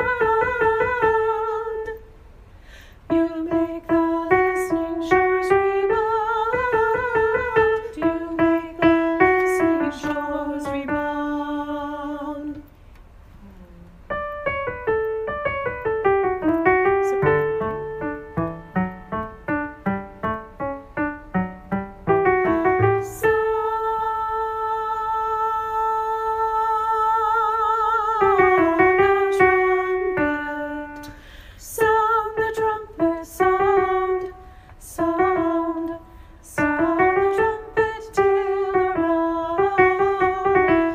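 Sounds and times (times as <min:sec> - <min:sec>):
piano accompaniment: 0:00.0 - 0:02.0, 0:03.1 - 0:11.9, 0:14.0 - 0:40.9
person singing: 0:03.1 - 0:12.7, 0:22.2 - 0:40.9.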